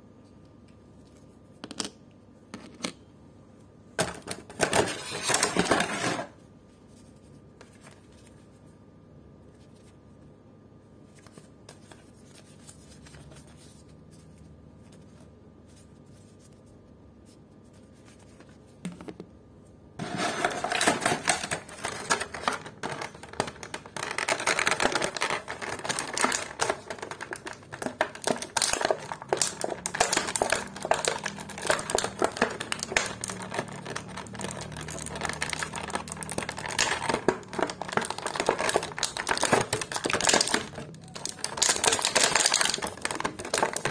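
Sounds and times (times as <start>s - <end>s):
plastic packaging crinkling: 20.0s - 43.9s.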